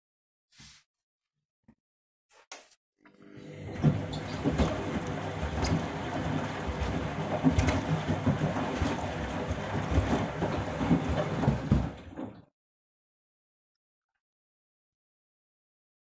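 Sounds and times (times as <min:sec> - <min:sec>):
washing machine drum tumbling: 0:03.5 - 0:12.5
water sloshing: 0:03.6 - 0:12.2.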